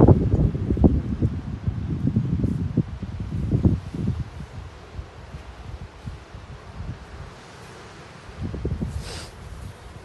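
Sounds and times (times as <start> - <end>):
wind buffeting microphone: 0.0 - 10.0
steady hiss: 2.2 - 10.0.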